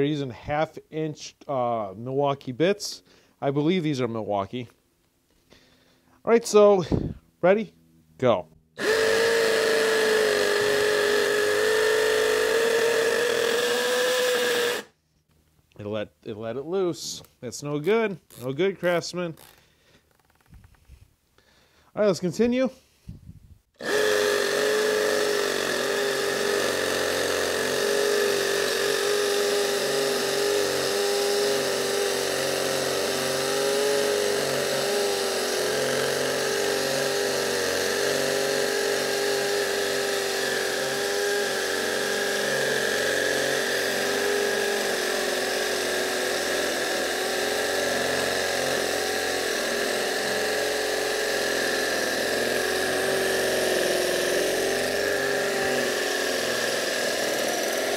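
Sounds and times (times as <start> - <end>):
hammer drill boring into concrete: 8.8 - 15.0, 23.8 - 57.9.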